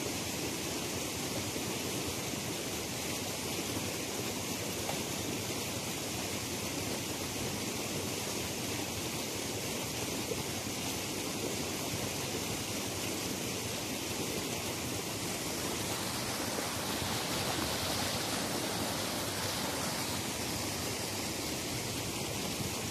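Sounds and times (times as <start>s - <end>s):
stream rushing over rocks: 0.0s - 22.9s.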